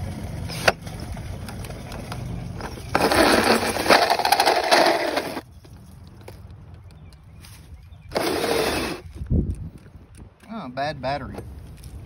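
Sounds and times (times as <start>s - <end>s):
drill boring through siding: 2.9s - 5.4s, 8.1s - 9.0s.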